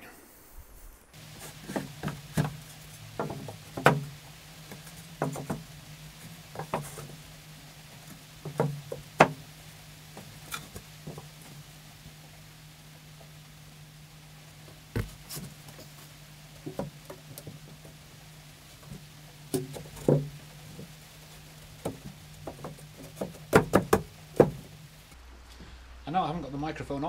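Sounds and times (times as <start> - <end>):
faint low hum: 0.0 - 27.0
wooden shelves knocking: 1.2 - 9.5, 16.6 - 18.0, 18.8 - 20.9, 21.7 - 24.9.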